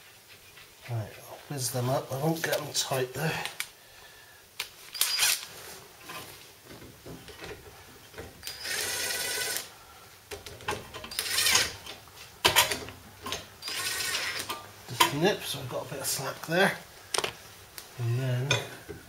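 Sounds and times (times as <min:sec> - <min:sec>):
impact driver spinning nuts: 0:08.4 - 0:09.7, 0:11.1 - 0:11.8.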